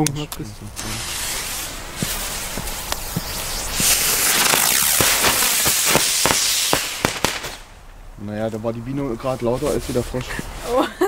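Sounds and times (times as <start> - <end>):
firecracker fizzing: 0.7 - 8.1
small firecracker pops: 1.5 - 8.0.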